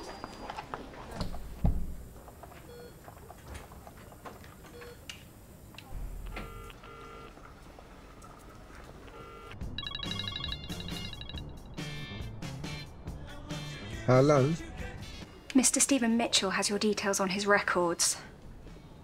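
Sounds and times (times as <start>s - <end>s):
telephone ringing tone: 6.3s - 7.3s, 9.1s - 11.6s.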